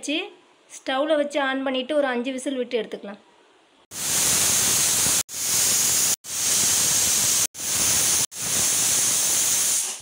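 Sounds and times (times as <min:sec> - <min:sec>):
pressure cooker whistling: 0:04.0 - 0:10.0.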